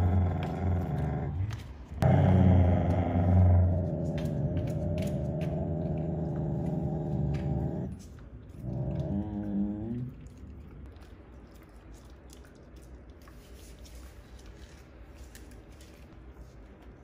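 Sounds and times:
dog growling low: 0.0 - 10.7.

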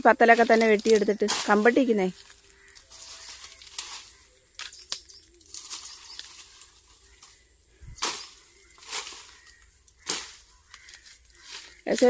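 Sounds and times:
billhook chopping brush: 8.0 - 11.0.

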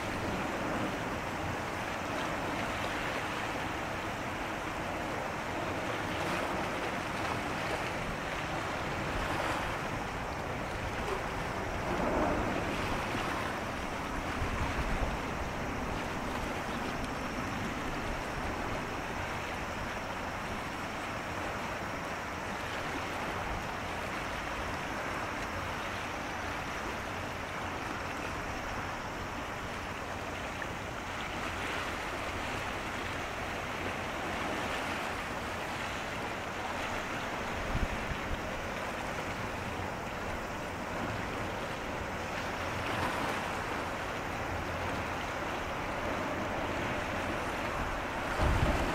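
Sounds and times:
sea water washing: 0.0 - 48.9
wind: 0.0 - 48.9.

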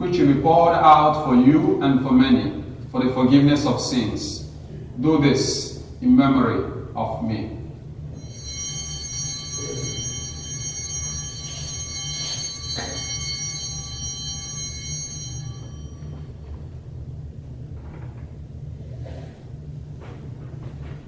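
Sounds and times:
altar bells ringing: 8.2 - 16.7.

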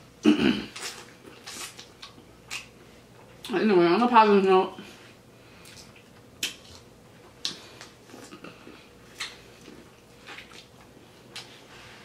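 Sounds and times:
person chewing corn: 0.6 - 3.4, 5.6 - 12.0.

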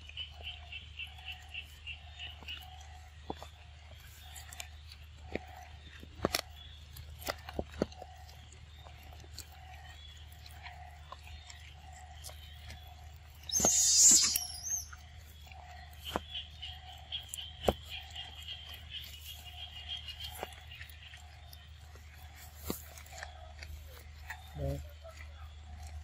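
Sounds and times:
monkeys chewing and crunching: 0.0 - 26.0
faint repeating chirp: 13.5 - 15.0.

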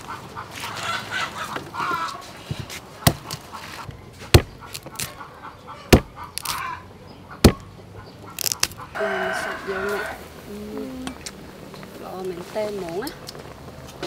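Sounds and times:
knife chopping on wooden board: 3.0 - 3.4, 4.3 - 5.2, 5.9 - 6.6, 7.4 - 7.7.

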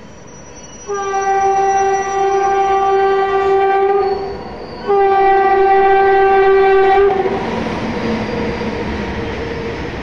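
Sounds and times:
train horn blast: 0.9 - 7.4.

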